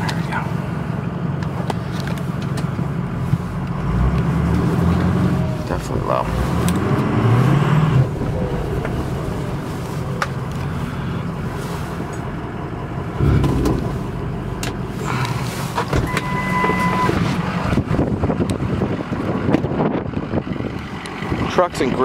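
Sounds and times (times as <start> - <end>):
diesel engine idling: 0.0 - 22.0
low thump: 13.2 - 14.1
electronic beep: 16.1 - 17.2.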